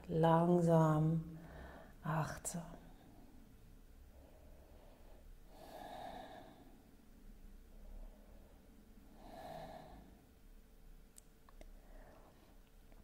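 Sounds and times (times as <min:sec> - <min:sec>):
woman breathing slowly: 0:01.3 - 0:02.0, 0:02.8 - 0:10.5, 0:11.6 - 0:13.0.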